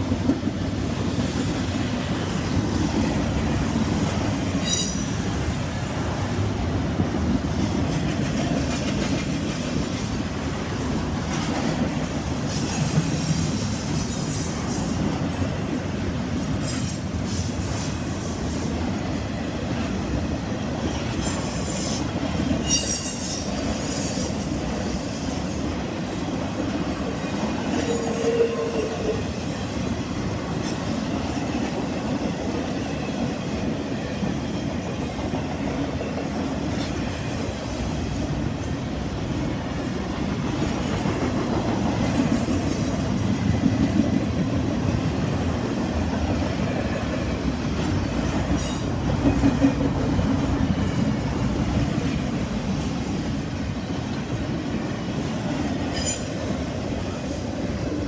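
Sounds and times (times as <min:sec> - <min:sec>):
train wheels rumbling on rail: 0:00.0 - 0:58.0
high wheel squeals: 0:22.6 - 0:23.5.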